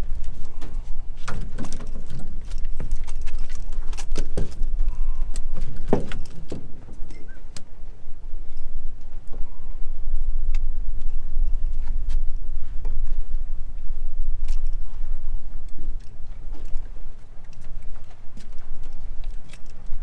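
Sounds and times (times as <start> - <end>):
fishing gear knocking and clattering: 0.0 - 7.4
wind buffeting microphone: 0.0 - 20.0.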